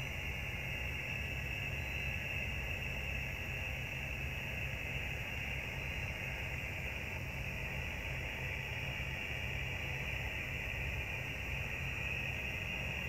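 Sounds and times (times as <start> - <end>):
constant hiss: 0.0 - 13.0.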